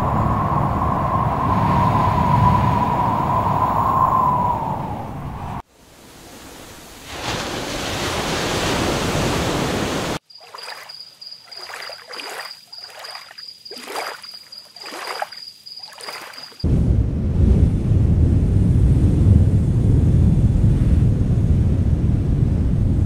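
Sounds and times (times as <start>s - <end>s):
surf and wind rushing: 0.0s - 10.8s
small waves lapping on rocks: 10.4s - 16.6s.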